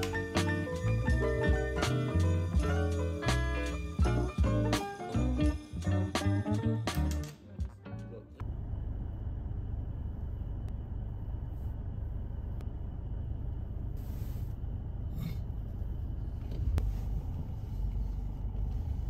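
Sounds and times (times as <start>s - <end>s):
car engine and road rumble: 8.3s - 19.0s.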